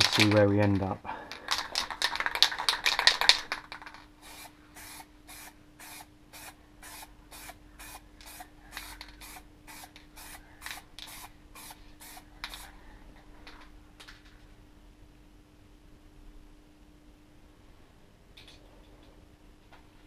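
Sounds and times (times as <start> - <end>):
aerosol can rattling when shaken: 0.0 - 12.7
aerosol can spraying in spurts: 4.2 - 12.7.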